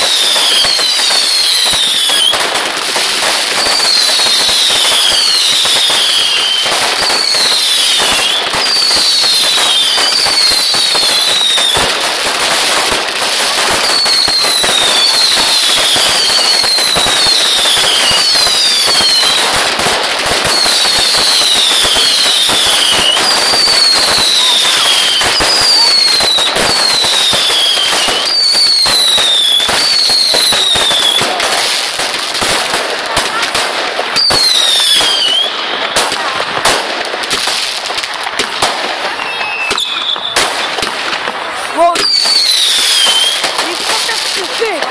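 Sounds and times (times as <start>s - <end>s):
firework whistles falling in pitch: 0.0s - 2.5s, 3.5s - 12.0s, 13.6s - 19.7s, 20.3s - 31.8s, 34.1s - 35.9s, 39.1s - 40.9s, 42.0s - 43.6s
fireworks crackling and popping: 0.0s - 44.9s.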